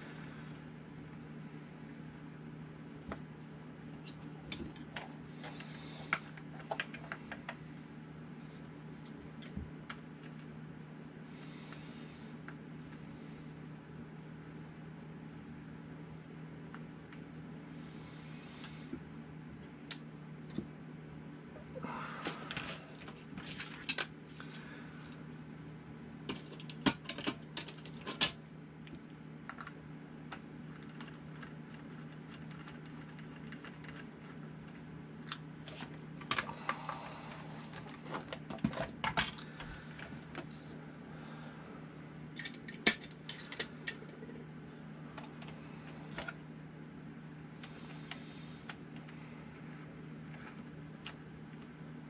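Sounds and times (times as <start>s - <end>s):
metal parts clicking and clinking: 26.3s - 28.4s, 42.4s - 44.0s
low hum: 27.8s - 52.0s.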